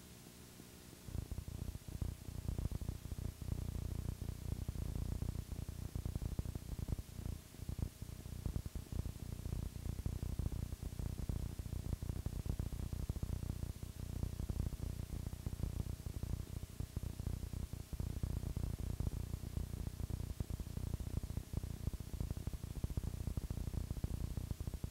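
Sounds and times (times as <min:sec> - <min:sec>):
videotape static crackle: 0:00.1 - 0:24.9.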